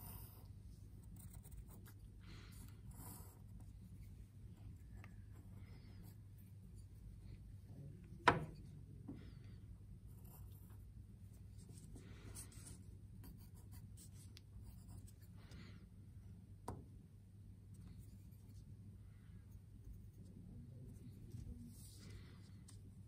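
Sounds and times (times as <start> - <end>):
pencil scratching on paper: 0.0 - 2.0, 11.6 - 15.3.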